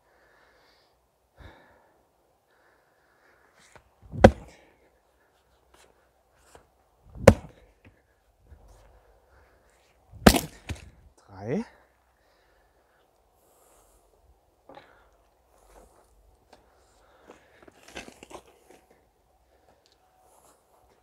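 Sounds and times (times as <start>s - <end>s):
maul chopping into log: 4.1s - 4.5s, 7.2s - 7.6s, 10.2s - 10.9s.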